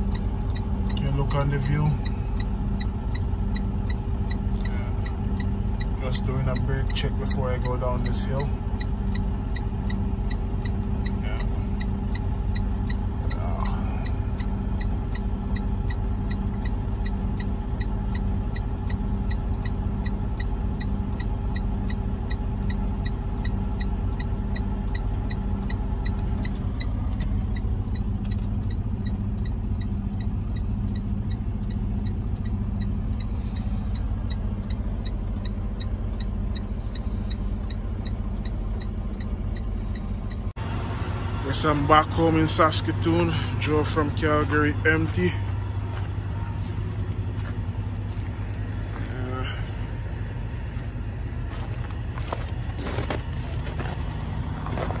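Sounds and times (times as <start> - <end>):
light ticking: 0.0 - 40.6
truck engine and road drone: 0.0 - 55.0.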